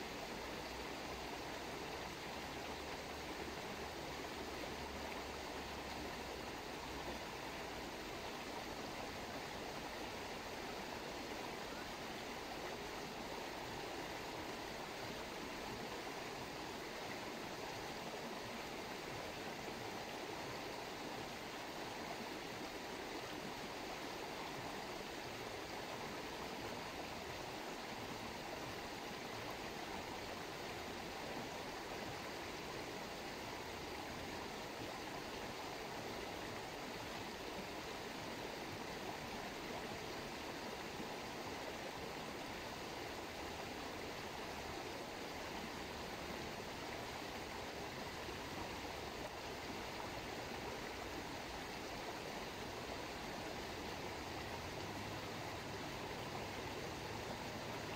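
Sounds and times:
running water: 0:00.0 - 0:57.9.

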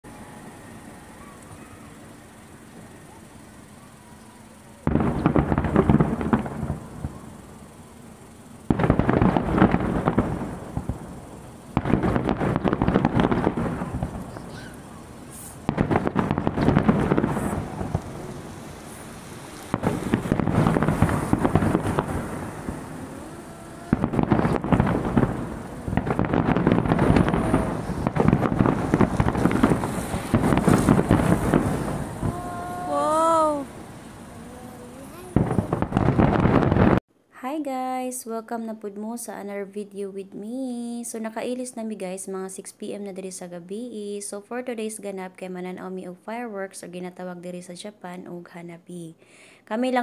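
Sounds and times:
firework crackling: 0:00.0 - 0:37.0
firework shells booming: 0:01.4 - 0:34.4, 0:35.0 - 0:37.0.

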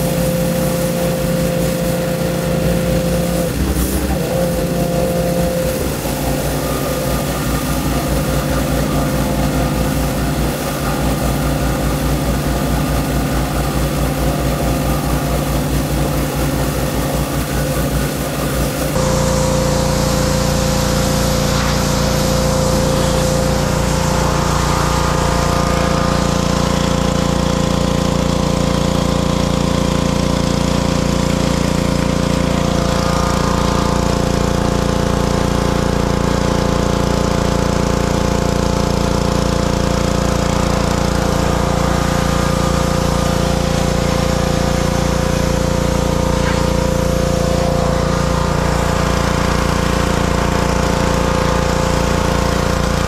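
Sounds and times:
water spray hissing: 0:00.0 - 0:27.0
pressure washer engines running: 0:00.0 - 0:53.0.

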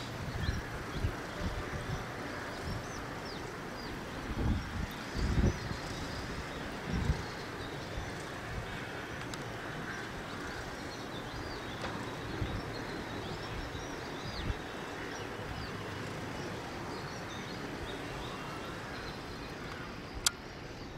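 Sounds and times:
outdoor background hiss and rumble: 0:00.0 - 0:20.9
small birds chirping: 0:00.0 - 0:20.9.

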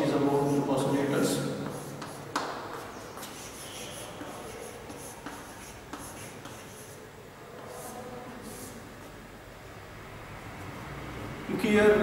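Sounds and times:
scratchy writing on a board: 0:00.3 - 0:07.0, 0:07.7 - 0:08.8.

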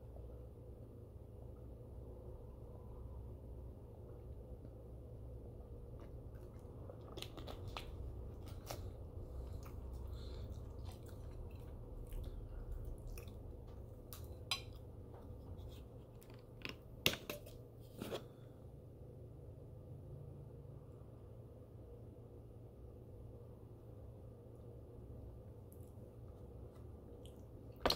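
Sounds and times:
chewing crunchy bacon: 0:05.8 - 0:14.9.

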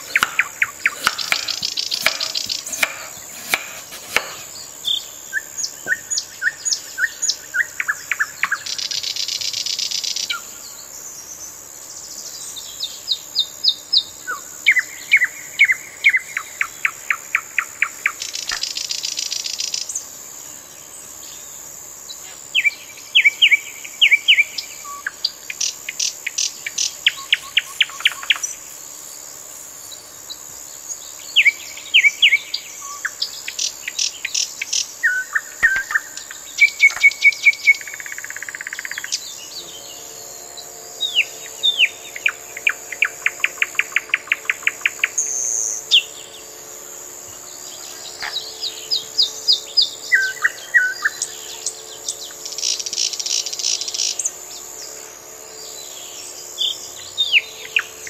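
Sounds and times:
steady high-pitched drone: 0:36.2 - 0:58.0
small birds chirping and singing: 0:38.7 - 0:58.0.

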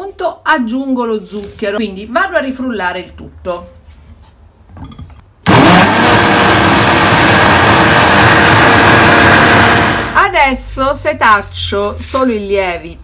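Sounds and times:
blender motor whine: 0:05.5 - 0:10.2.

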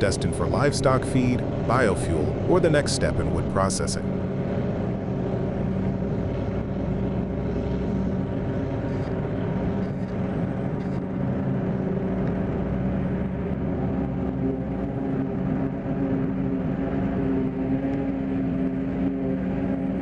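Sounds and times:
tractor diesel engine under load: 0:00.0 - 0:10.0.

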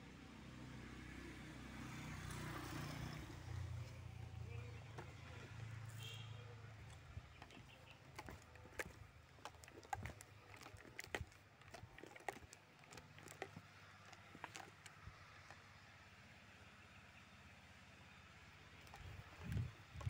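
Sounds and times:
faint irregular clicks and taps: 0:06.9 - 0:15.6.

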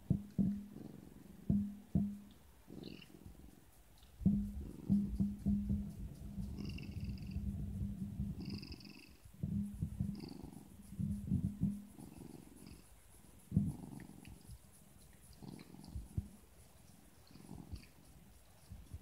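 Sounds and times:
cat purring: 0:00.0 - 0:19.0.

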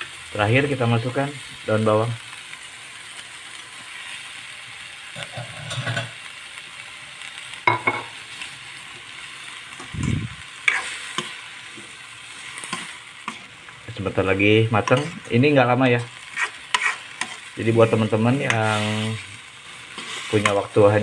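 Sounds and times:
food sizzling in a wok: 0:00.0 - 0:21.0
metal spatula scraping wok: 0:05.2 - 0:06.2, 0:09.8 - 0:11.4, 0:12.4 - 0:13.5, 0:14.8 - 0:20.7.

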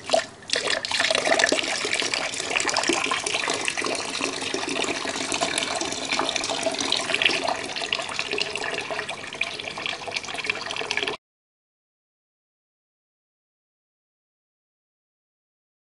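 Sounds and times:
water running and splashing: 0:00.0 - 0:11.2.

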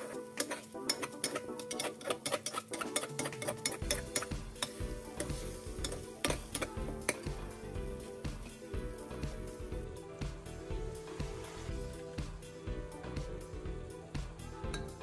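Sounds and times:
spatula scraping metal pan: 0:00.0 - 0:07.4
background music with beat: 0:03.0 - 0:15.0
light frying sizzle: 0:03.9 - 0:09.9.

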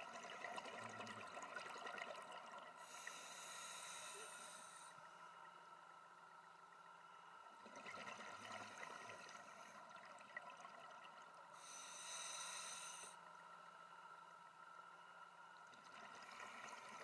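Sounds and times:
regulator inhale hiss: 0:02.8 - 0:05.1, 0:11.5 - 0:13.2.

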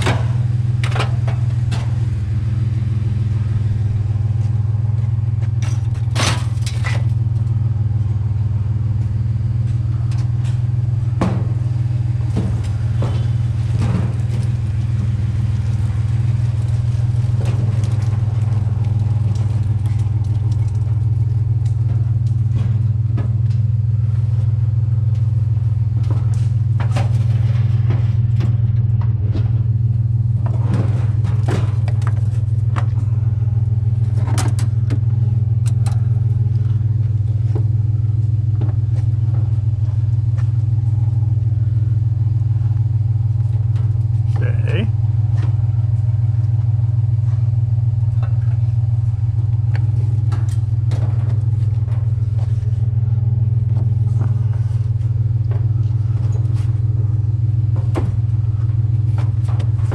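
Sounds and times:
truck engine and road drone: 0:00.0 - 0:59.9.

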